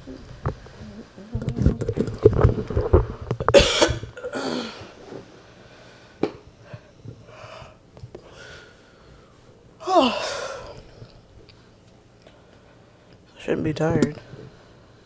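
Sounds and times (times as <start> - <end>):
person coughing: 3.5 - 4.8
faint yawn: 9.8 - 10.8.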